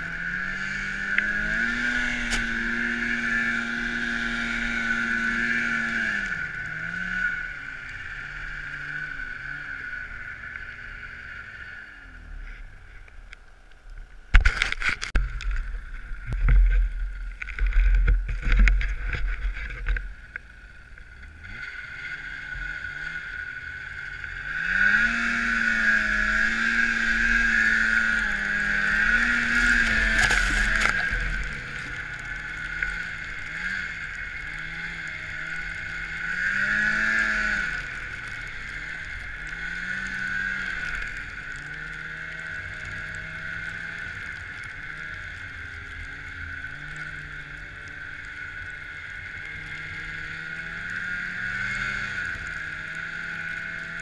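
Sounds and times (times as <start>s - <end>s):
snowmobile engine revving: 0.0s - 12.6s, 21.3s - 54.0s
knocks and rumbles on microphone: 14.3s - 20.1s
steady high whine: 25.4s - 41.6s.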